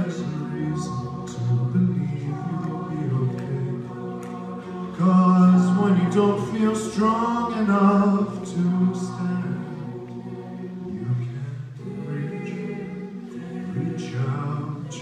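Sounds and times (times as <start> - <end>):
backing vocal harmonies: 0.0 - 15.0
male lead voice singing: 4.9 - 9.8.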